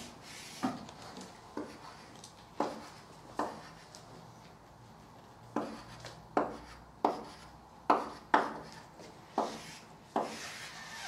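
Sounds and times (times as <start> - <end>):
chalk scraping on a blackboard: 1.6 - 3.9, 5.6 - 11.0.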